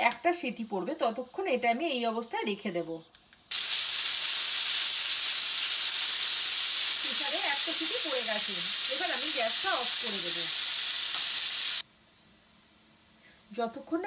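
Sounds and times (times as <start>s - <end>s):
pressure cooker whistling steam: 3.5s - 11.8s.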